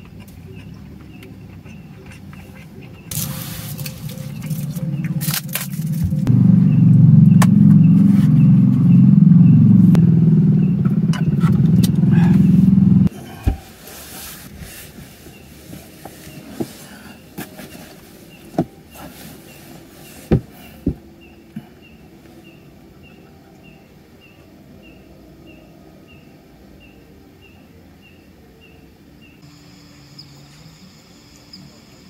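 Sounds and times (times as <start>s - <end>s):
loud low drone: 3.1s - 13.1s
blankets rustling: 13.6s - 20.9s
faint insect chirps: 29.4s - 32.0s.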